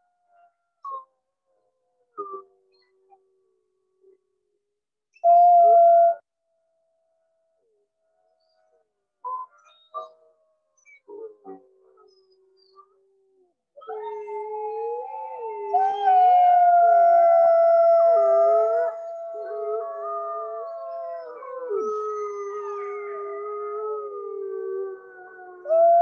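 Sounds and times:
wolves howling in chorus: 13.8 - 26.0.

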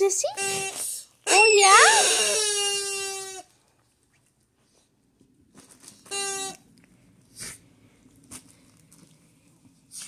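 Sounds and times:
dog toy squeak: 0.4 - 3.4, 6.1 - 6.6.

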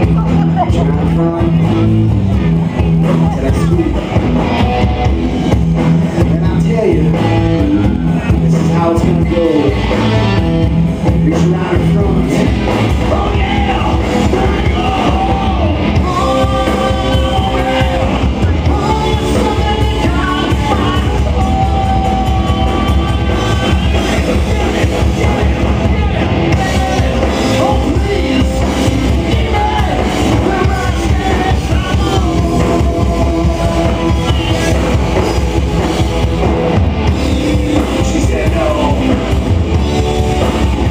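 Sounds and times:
bass guitar: 0.0 - 40.9
drums: 0.0 - 40.9
electric guitar: 0.0 - 40.9
lead singer singing: 6.0 - 40.9.

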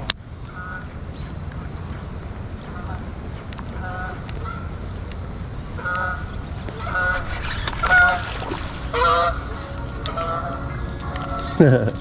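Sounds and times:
low background rush: 0.0 - 12.0
geese honking: 0.5 - 1.0, 3.7 - 4.8, 5.8 - 11.6.

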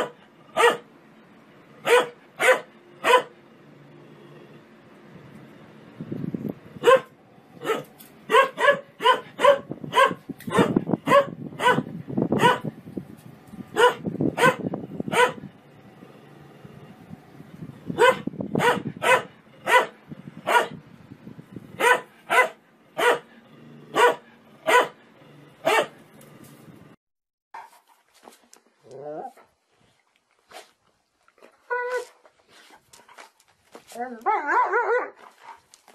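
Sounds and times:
dog barking: 0.0 - 0.9, 1.8 - 3.4, 6.8 - 12.7, 13.7 - 15.5, 18.0 - 20.8, 21.8 - 23.3, 23.9 - 25.0, 25.6 - 26.0, 34.3 - 35.2.

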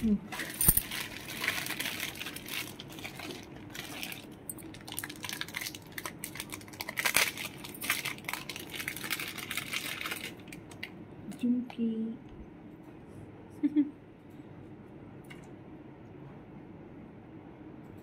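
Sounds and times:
crinkling and rustling: 0.3 - 10.9.

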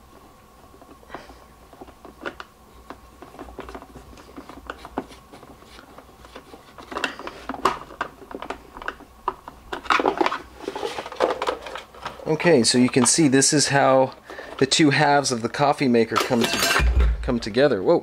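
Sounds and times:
plastic parts clattering: 9.7 - 13.2.

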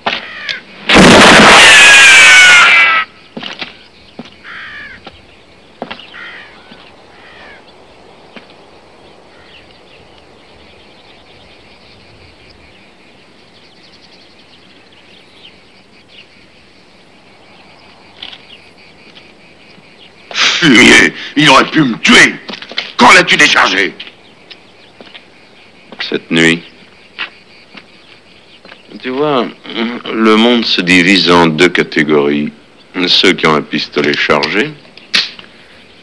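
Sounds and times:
faint outdoor hiss: 0.0 - 36.0
bird cawing: 0.1 - 0.7, 2.2 - 5.1, 5.8 - 7.9, 9.2 - 9.9
sharp clicks: 34.0 - 35.5.

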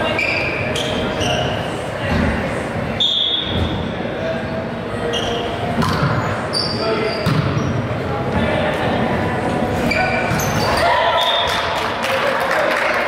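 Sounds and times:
short high squeaks: 0.0 - 1.6, 5.0 - 5.6, 9.8 - 11.4
voices echoing in a gymnasium: 0.0 - 13.0.

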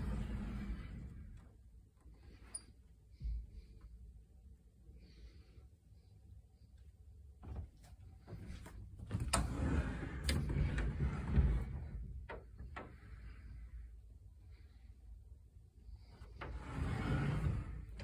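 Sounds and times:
door rubbing noise: 0.0 - 1.4, 16.4 - 18.0.

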